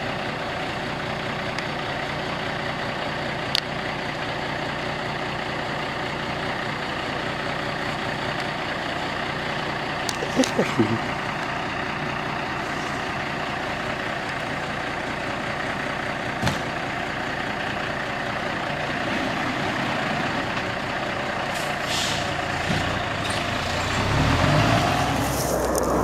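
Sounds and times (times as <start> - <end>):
diesel truck engine idling: 0.0 - 26.0
air brakes hissing: 21.5 - 22.4.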